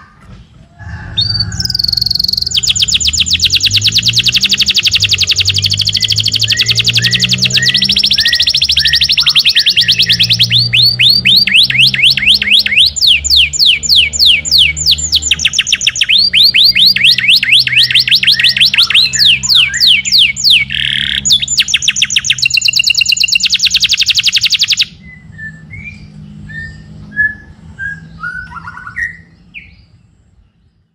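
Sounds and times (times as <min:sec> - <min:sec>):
canary singing trills: 0:00.0 - 0:30.9.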